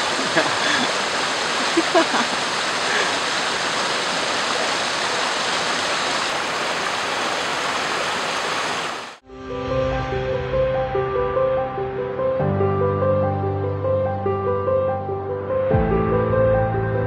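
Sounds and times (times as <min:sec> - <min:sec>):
stream flowing over rocks: 0:00.0 - 0:09.2.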